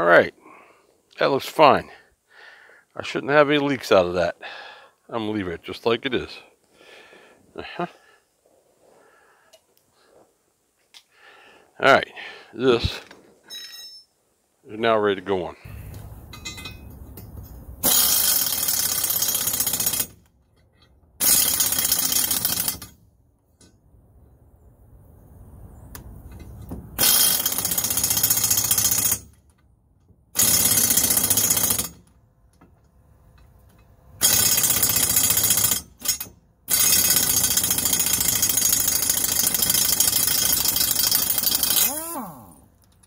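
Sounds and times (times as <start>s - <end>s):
pneumatic air wrench bursts: 17.8s - 20.1s, 21.2s - 22.9s, 27.0s - 29.3s, 34.2s - 42.0s.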